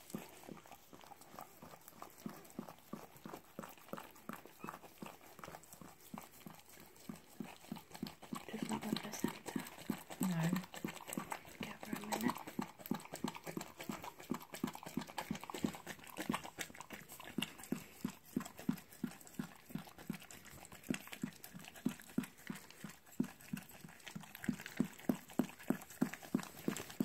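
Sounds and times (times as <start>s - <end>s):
dog panting quickly: 0.0s - 27.0s.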